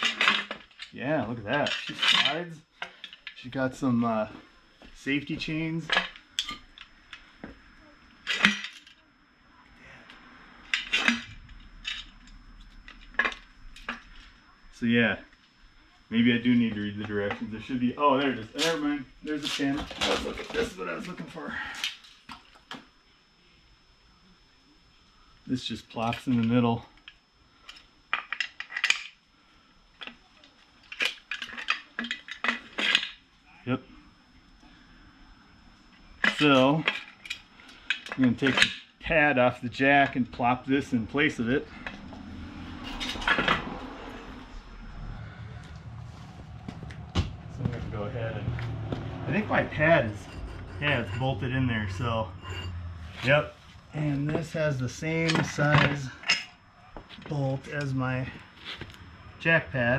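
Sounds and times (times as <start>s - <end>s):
metal parts clinking: 0.0s - 1.0s, 1.6s - 3.4s, 10.7s - 14.3s, 26.1s - 29.2s, 30.8s - 33.2s, 36.2s - 38.9s, 42.8s - 43.6s
steel parts and chains clanking: 0.0s - 4.2s, 10.6s - 14.3s, 36.2s - 38.9s, 40.8s - 45.2s, 47.6s - 56.6s.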